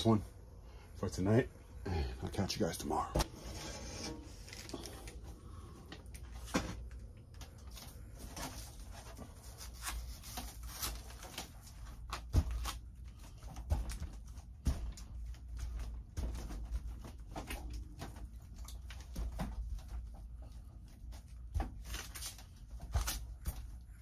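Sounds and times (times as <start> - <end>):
glass rubbing and scraping: 3.2 - 4.5.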